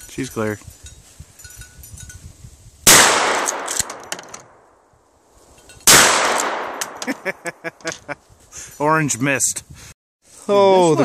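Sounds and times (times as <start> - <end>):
shotgun shots: 2.9 - 4.6, 5.8 - 7.0.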